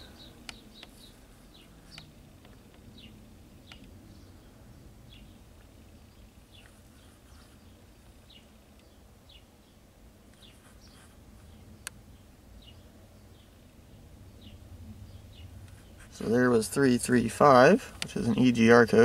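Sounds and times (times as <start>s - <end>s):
faint bird chirps: 0.0s - 2.2s, 10.4s - 16.4s.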